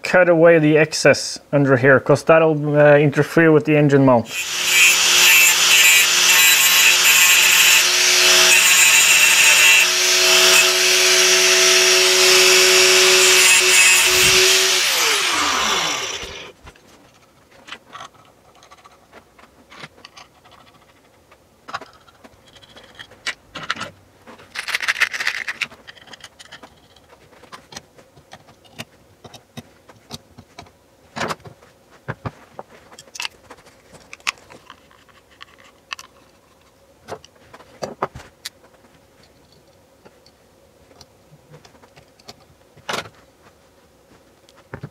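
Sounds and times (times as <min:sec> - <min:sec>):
angle grinder cutting metal: 0:04.3 - 0:16.6
grinder spinning down: 0:04.3 - 0:16.6
metal parts clinking: 0:24.5 - 0:26.9.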